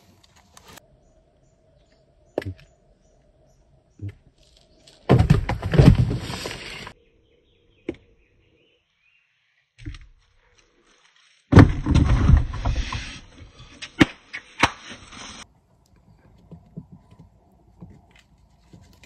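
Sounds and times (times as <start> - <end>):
cardboard rustling and scraping: 4.4 - 7.0.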